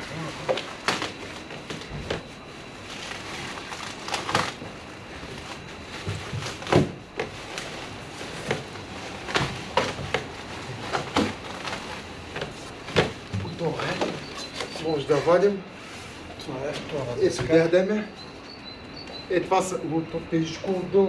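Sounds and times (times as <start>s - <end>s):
cardboard scraping and rustling: 0.1s - 17.6s.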